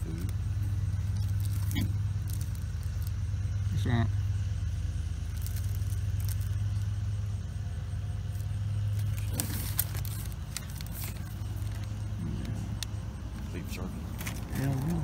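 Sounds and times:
plastic packs crinkling: 0.0s - 3.2s, 5.3s - 7.0s, 8.3s - 12.1s, 12.8s - 15.0s
vehicle engine idling: 0.0s - 15.0s.

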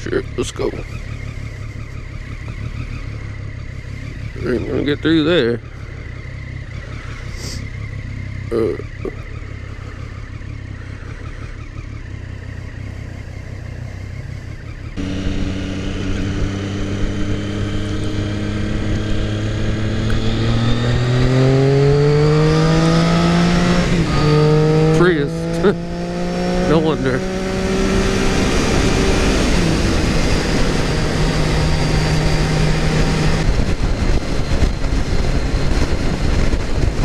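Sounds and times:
motorcycle engine idling: 0.0s - 20.1s
motorcycle accelerating: 0.0s - 37.0s.

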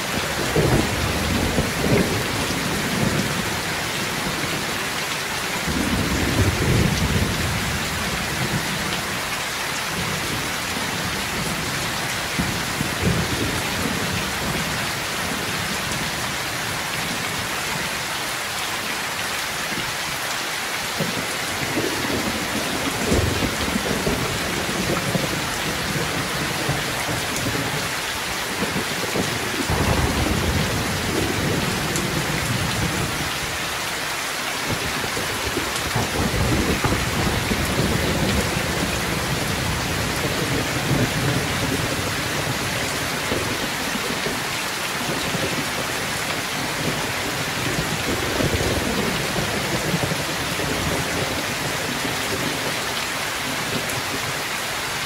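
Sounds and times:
heavy rain pouring: 0.0s - 55.0s
low thunder rumbling: 0.2s - 4.6s, 21.0s - 33.6s, 34.7s - 43.7s.

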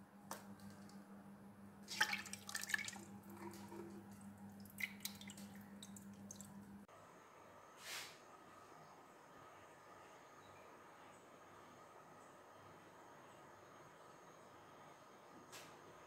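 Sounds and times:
faint steady hum: 0.0s - 16.0s
liquid dripping into metal vessel: 1.9s - 6.6s.

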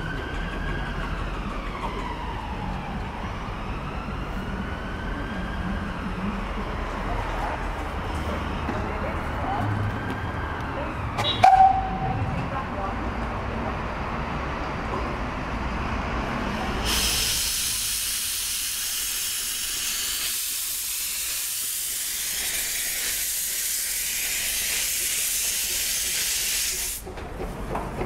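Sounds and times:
steam locomotive pulling away: 0.0s - 8.6s, 15.2s - 28.0s
loud steam hiss: 16.7s - 27.0s.

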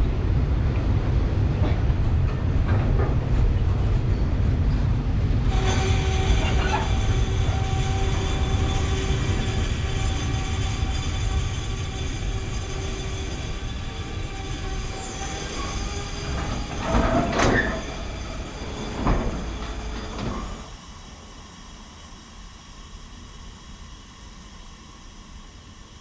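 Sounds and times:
freight train rumbling past: 0.0s - 22.8s.

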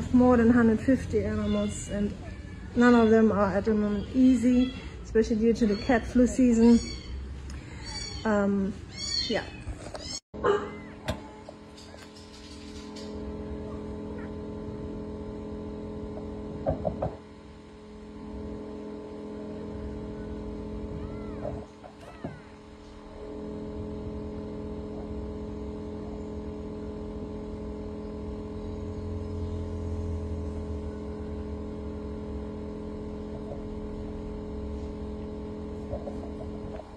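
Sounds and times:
low mechanical hum: 0.0s - 36.9s
faint high calls: 19.8s - 22.9s.

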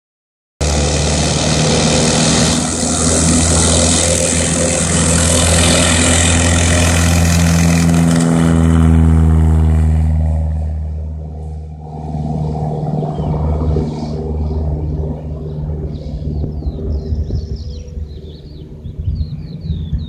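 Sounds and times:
light aircraft engine and propeller: 0.6s - 20.0s.

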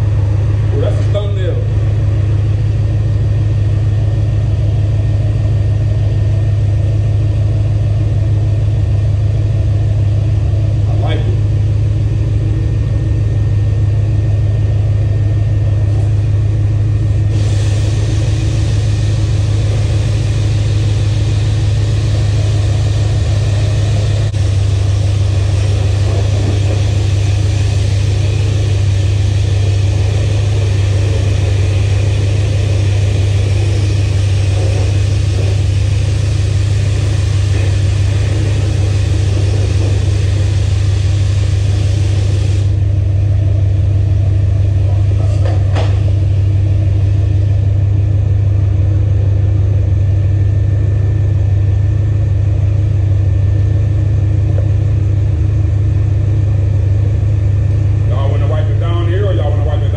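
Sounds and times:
loud low hum: 0.0s - 59.9s
pressure washer spraying hiss: 17.3s - 42.7s.

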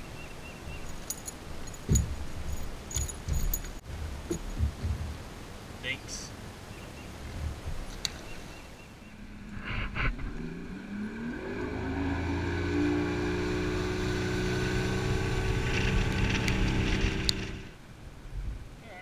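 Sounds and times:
outboard motor revving: 9.1s - 17.8s.

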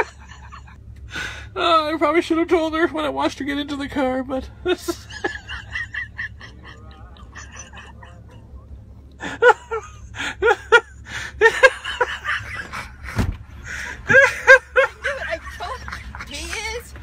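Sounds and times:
thump: 13.1s - 13.4s.

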